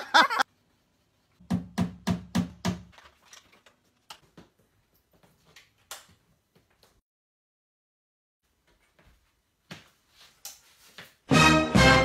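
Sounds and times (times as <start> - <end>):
footsteps on hard floor: 8.6 - 11.3.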